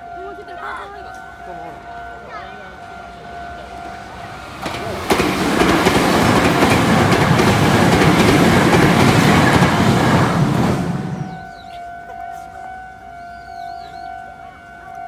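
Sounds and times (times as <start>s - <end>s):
electric train passing: 0.0s - 15.0s
level crossing warning tone: 0.0s - 15.0s
wheels clattering over rail joints: 3.6s - 11.6s.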